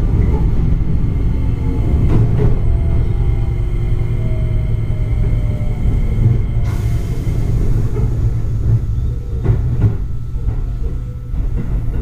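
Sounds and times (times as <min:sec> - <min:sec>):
train running rumble: 0:00.0 - 0:12.0.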